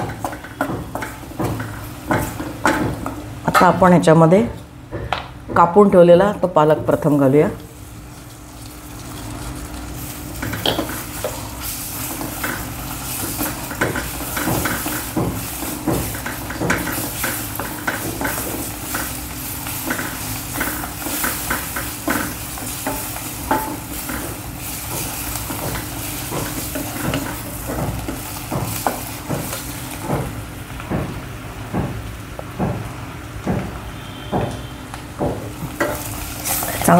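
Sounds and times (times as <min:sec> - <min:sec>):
spinach sizzling in hot oil: 0:07.5 - 0:36.9.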